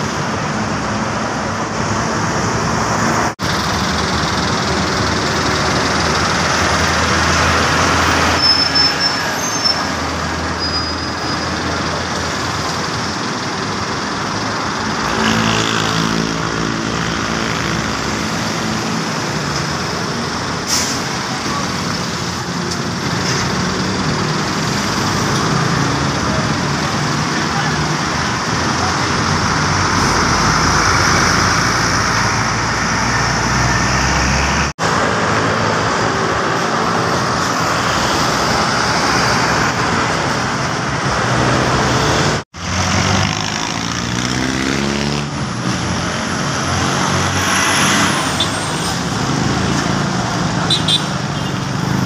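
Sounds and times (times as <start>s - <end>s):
bus diesel engine droning: 0.0s - 43.0s
roadway traffic: 0.0s - 52.0s
brief high squeals: 8.2s - 10.0s, 10.6s - 11.4s.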